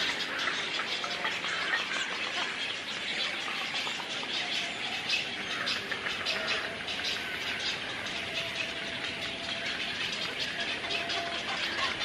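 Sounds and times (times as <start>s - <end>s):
many birds chirping: 0.0s - 12.0s.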